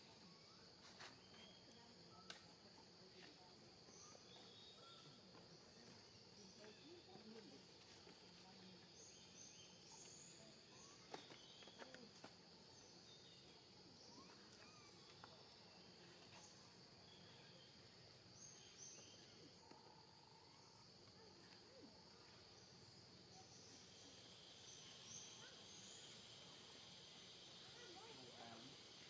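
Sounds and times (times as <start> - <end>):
bird chirps: 12.7 - 19.8.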